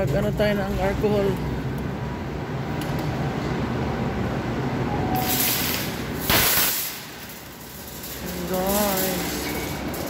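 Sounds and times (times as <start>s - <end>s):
shopping cart rumbling and rattling: 5.1s - 10.0s
loud rushing hiss: 5.2s - 10.0s.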